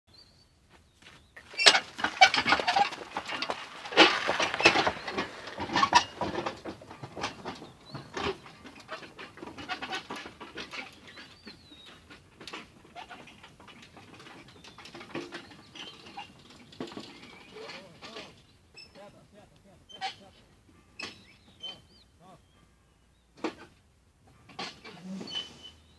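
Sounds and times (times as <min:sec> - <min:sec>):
mule hoofs: 0:00.1 - 0:25.9
cart rattling and knocking: 0:01.4 - 0:19.2.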